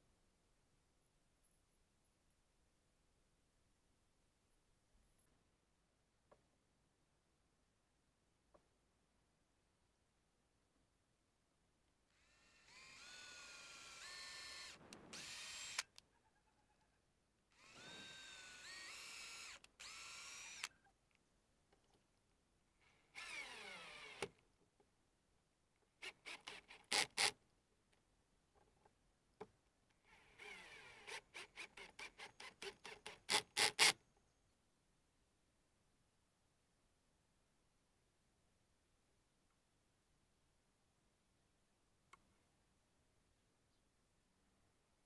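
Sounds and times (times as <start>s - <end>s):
cordless drill drilling plastic: 12.2s - 16.0s, 17.6s - 20.7s, 23.1s - 24.4s, 26.0s - 27.3s, 30.1s - 34.0s
drill driving bolts in bursts: 12.2s - 16.0s, 17.6s - 20.7s, 26.0s - 27.3s, 30.1s - 34.0s.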